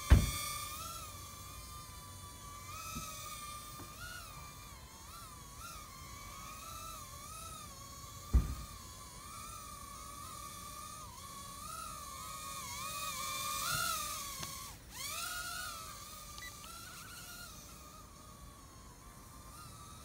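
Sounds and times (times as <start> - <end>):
low thump: 0.0 - 0.4, 8.3 - 8.8
quadcopter motors whining: 0.0 - 20.0.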